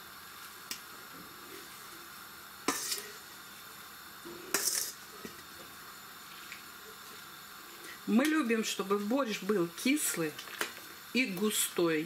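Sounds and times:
metal utensil scraping bowl: 0:02.7 - 0:03.2, 0:04.5 - 0:05.0.

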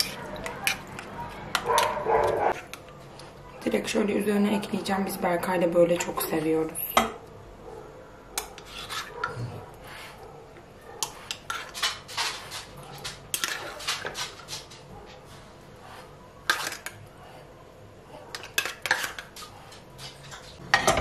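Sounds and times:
fork scraping in a tin: 0:08.4 - 0:10.2.

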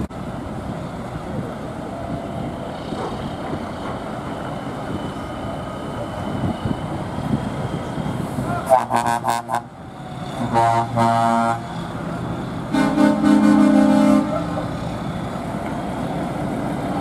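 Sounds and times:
lorry air horn blasts: 0:10.4 - 0:11.7, 0:12.7 - 0:14.5.

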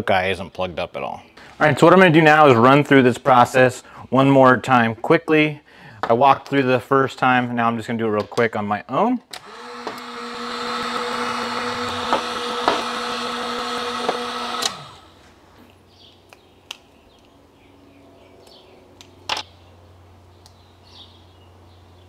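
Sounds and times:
heat gun humming: 0:09.3 - 0:15.4.

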